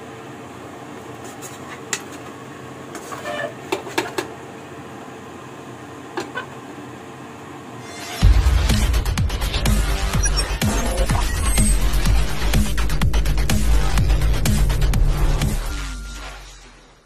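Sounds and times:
spatula scraping a pan: 3.0s - 3.6s
low hum: 8.2s - 16.6s.

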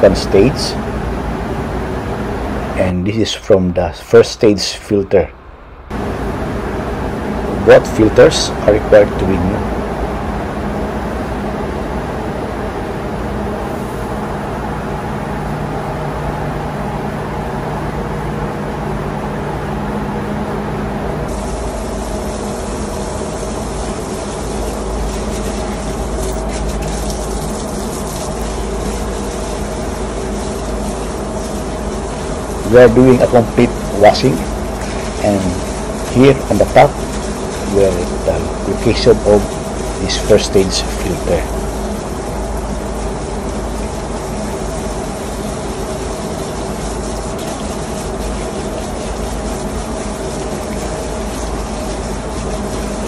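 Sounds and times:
engine room machinery drone: 0.0s - 53.0s
water jet splashing on steel: 21.3s - 53.0s.

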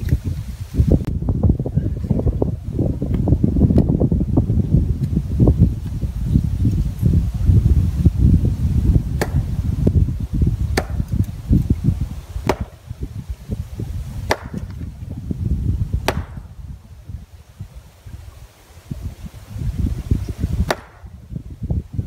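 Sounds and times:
wind rumble on microphone: 0.0s - 22.0s
axe splitting firewood: 9.2s - 9.5s, 10.7s - 11.4s, 12.4s - 12.8s, 14.2s - 14.9s, 16.0s - 16.5s, 20.6s - 21.1s.

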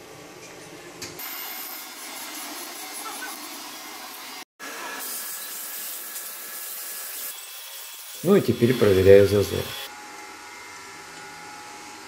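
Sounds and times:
workshop hiss: 1.2s - 9.9s.

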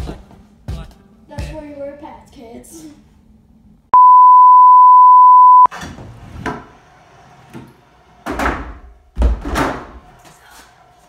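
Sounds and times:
test-tone beep: 4.0s - 5.7s.

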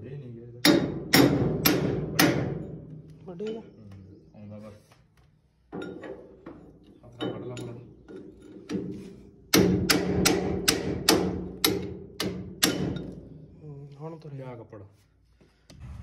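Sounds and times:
hammer ringing on metal: 0.6s - 2.8s, 9.5s - 13.2s.

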